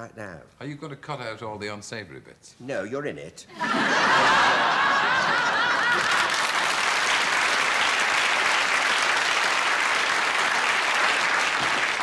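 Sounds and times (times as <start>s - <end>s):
audience laughter: 3.5s - 6.8s
audience applauding: 4.1s - 12.0s.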